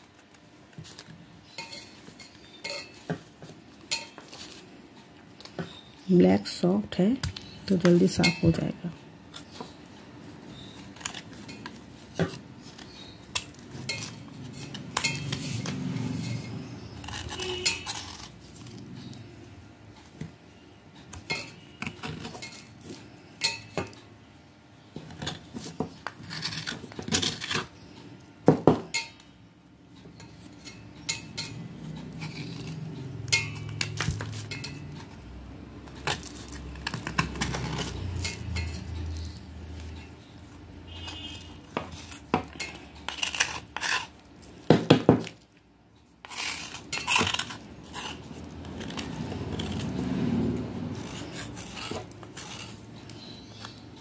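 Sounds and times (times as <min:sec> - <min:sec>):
metal blade scraping clay: 0:10.5 - 0:19.2, 0:40.9 - 0:44.2, 0:46.2 - 0:53.8.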